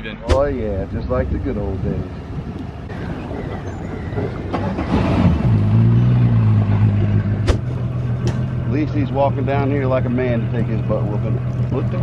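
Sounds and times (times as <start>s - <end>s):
outboard boat motor idling: 7.7s - 12.0s.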